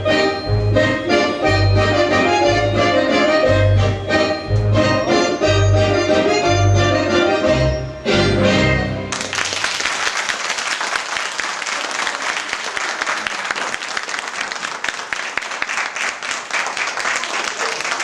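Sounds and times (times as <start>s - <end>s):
audience applauding: 9.1s - 18.0s.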